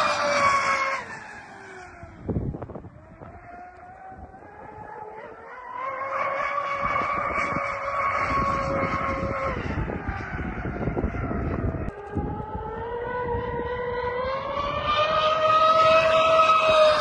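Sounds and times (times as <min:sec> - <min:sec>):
rough rushing noise: 0:00.0 - 0:04.9
electric motor whining: 0:00.0 - 0:17.0.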